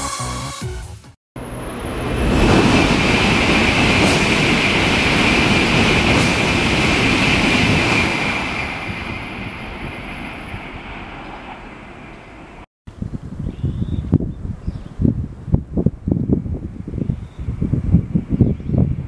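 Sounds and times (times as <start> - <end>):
high-speed train passing: 1.4 - 12.7.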